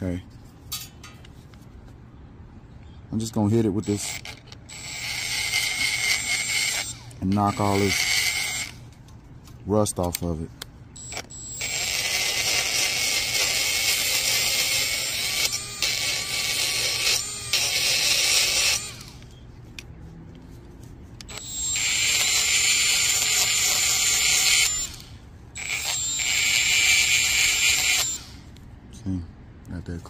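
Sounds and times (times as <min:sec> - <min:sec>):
rotary tool high whine: 0:03.4 - 0:08.9, 0:11.0 - 0:19.4, 0:21.2 - 0:28.6.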